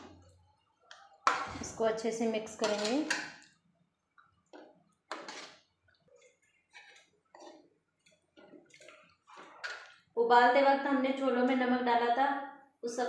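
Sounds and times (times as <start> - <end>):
ladle scraping metal pot: 2.6 - 3.4, 5.1 - 10.0.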